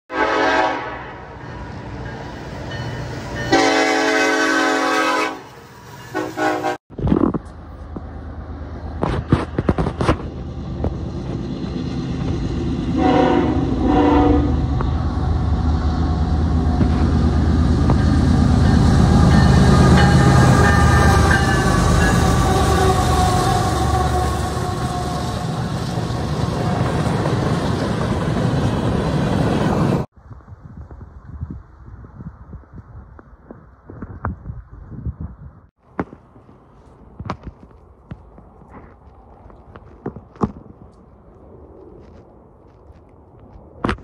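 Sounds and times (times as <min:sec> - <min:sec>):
locomotive horn blasts: 0:00.1 - 0:01.4, 0:03.5 - 0:06.8, 0:12.9 - 0:14.8, 0:18.0 - 0:25.6
diesel locomotive engines rumbling: 0:00.1 - 0:30.2.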